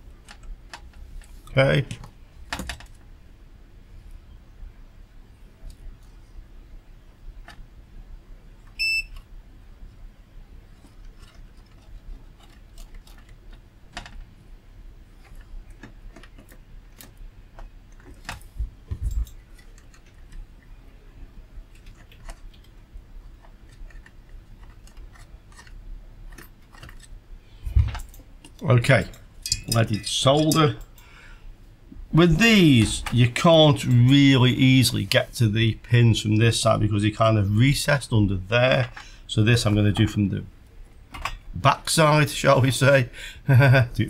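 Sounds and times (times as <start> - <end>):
faint steady hum: 0.0 - 44.0
electronic beep: 8.8 - 9.2.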